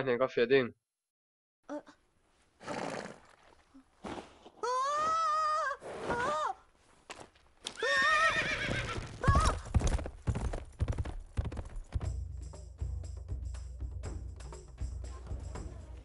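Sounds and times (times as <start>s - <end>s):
horse whinnying: 2.6s - 3.4s, 7.7s - 9.7s
galloping hoofbeats: 7.8s - 12.4s.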